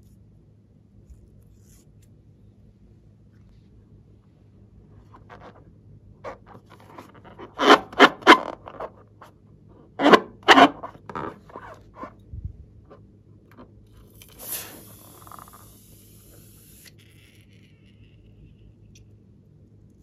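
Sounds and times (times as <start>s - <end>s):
rubbery squeaks and scrapes: 5.0s - 12.2s.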